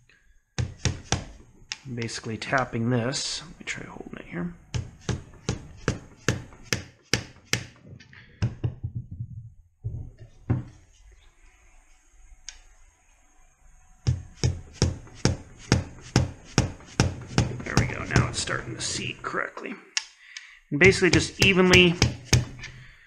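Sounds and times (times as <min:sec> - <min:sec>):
mallet tapping metal tool: 0:20.8 - 0:22.6.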